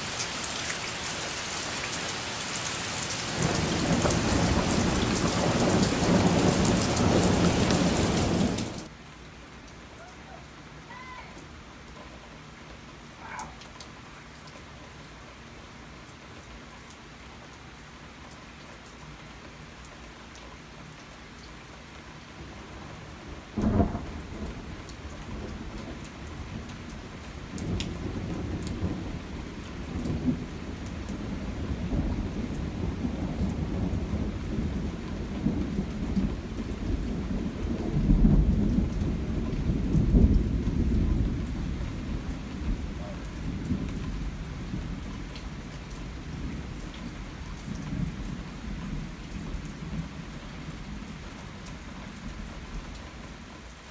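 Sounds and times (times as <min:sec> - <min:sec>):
steady rain: 0:00.0 - 0:53.9
rolling thunder: 0:03.2 - 0:08.9, 0:23.6 - 0:26.7, 0:27.5 - 0:45.1
sharp thunderclap: 0:03.3 - 0:08.9, 0:23.6 - 0:24.5.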